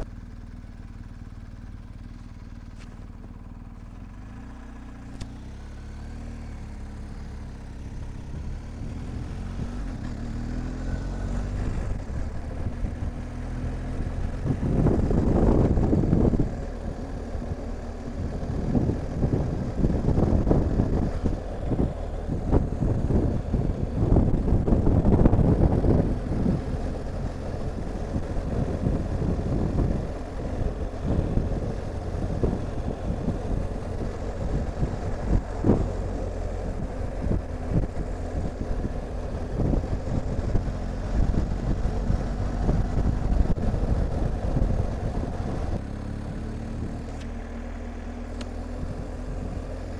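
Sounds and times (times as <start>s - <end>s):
motorcycle engine running: 0.0s - 49.9s
wind buffeting microphone: 10.8s - 47.3s, 48.3s - 49.9s.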